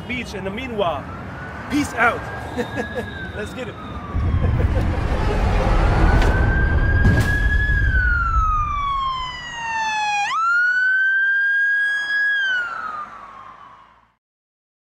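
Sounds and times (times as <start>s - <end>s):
police siren wailing: 0.4s - 14.2s
low street rumble: 3.2s - 9.6s.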